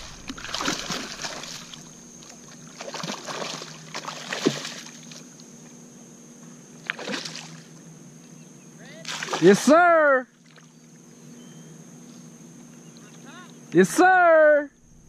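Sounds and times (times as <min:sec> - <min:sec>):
fish thrashing and splashing water: 0:00.0 - 0:05.3, 0:06.8 - 0:07.6, 0:09.1 - 0:09.6.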